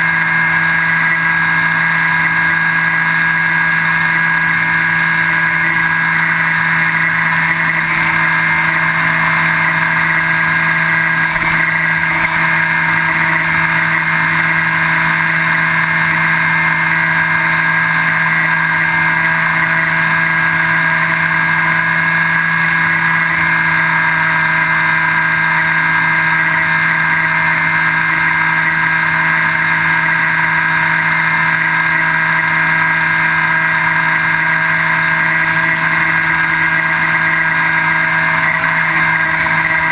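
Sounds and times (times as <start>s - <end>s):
electric motor and propeller: 0.0s - 39.9s.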